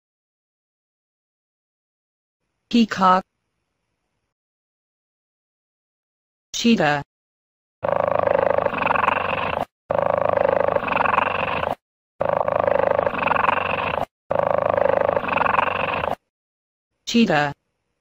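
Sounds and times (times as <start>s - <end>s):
cheetah vocalisation: 7.8s - 16.3s.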